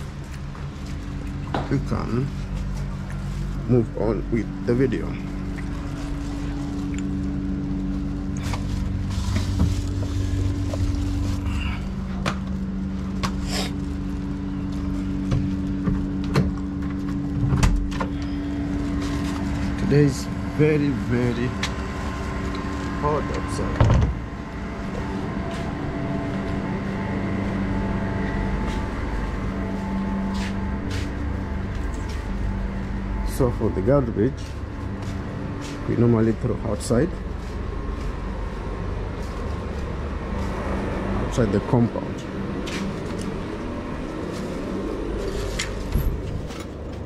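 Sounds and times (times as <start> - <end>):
garbage rustling: 0.0 - 17.3
low machine hum: 0.0 - 47.0.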